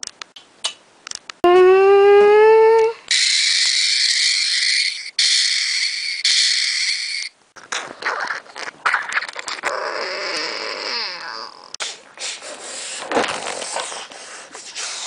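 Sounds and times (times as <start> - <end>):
ragged creature cry: 8.0 - 11.8.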